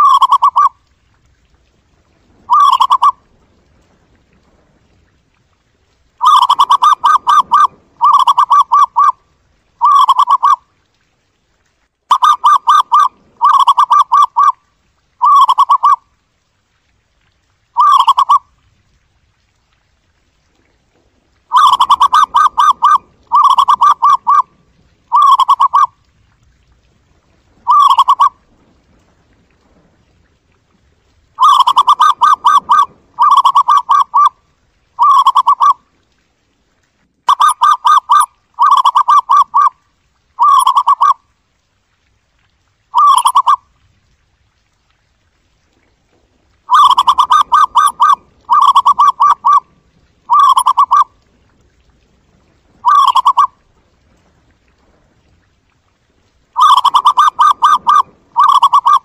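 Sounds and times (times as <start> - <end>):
dove cooing: 0.0 - 0.7, 2.4 - 3.2, 6.2 - 9.2, 9.8 - 10.6, 12.1 - 14.6, 15.2 - 16.0, 17.8 - 18.4, 21.5 - 24.5, 25.1 - 25.9, 27.7 - 28.4, 31.4 - 34.4, 35.0 - 35.8, 37.3 - 39.7, 40.4 - 41.2, 43.0 - 43.6, 46.7 - 49.6, 50.3 - 51.1, 52.8 - 53.5, 56.6 - 59.0.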